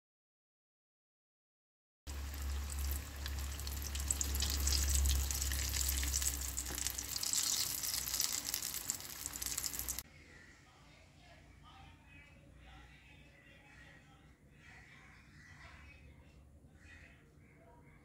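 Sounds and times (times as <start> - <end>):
low hum: 2.1 - 7.3
sausages sizzling in hot oil: 2.1 - 10.0.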